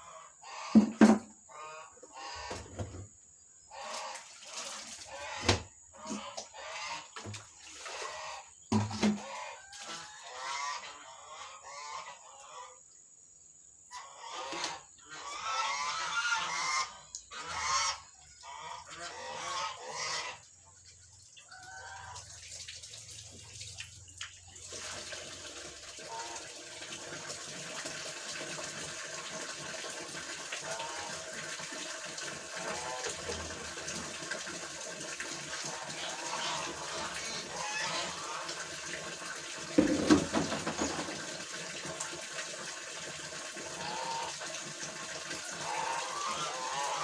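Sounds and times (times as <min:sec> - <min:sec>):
poultry calling loudly: 0:01.5 - 0:02.7, 0:09.2 - 0:12.8, 0:13.9 - 0:20.5, 0:35.6 - 0:38.7, 0:45.5 - 0:47.0
water pouring into a tank: 0:03.7 - 0:11.4, 0:14.6 - 0:47.0.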